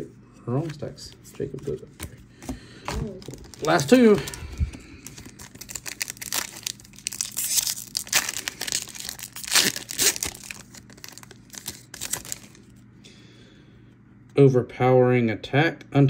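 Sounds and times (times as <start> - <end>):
plastic wrapper crinkling: 2.9 - 12.7.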